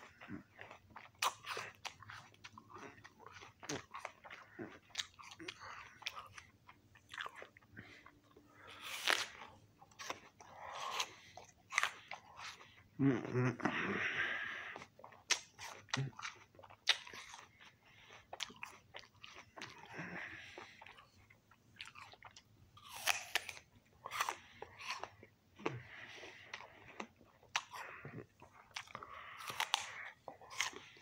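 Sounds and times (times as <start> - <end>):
crunchy apple chewing: 0.0 - 12.7, 14.7 - 31.0.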